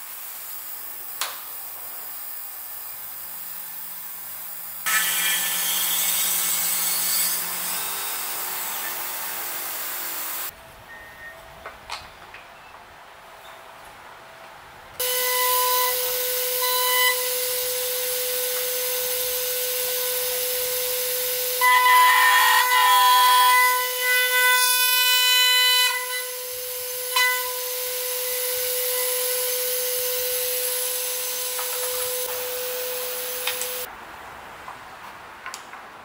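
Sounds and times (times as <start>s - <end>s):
end mill cutting wood: 4.9s - 10.5s.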